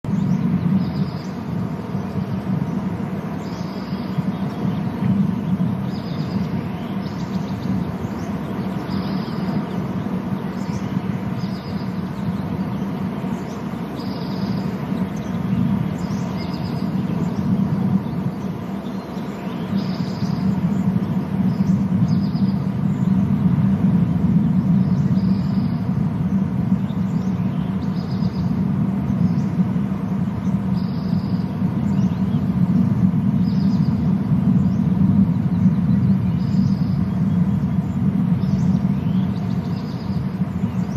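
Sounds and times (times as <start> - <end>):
low outdoor rumble: 0.0 - 40.9
bird chirping: 0.1 - 23.2, 24.4 - 32.6, 33.2 - 40.9.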